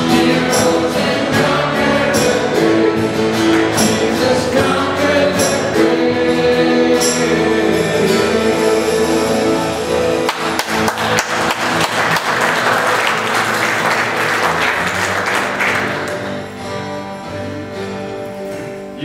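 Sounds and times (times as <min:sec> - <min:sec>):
acoustic guitar: 0:00.0 - 0:19.0
congregation applauding: 0:03.4 - 0:04.0, 0:10.0 - 0:16.6.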